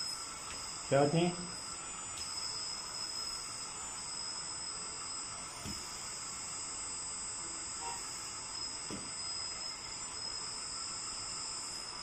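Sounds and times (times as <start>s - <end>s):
toy loader high-pitched whine: 0.0s - 12.0s.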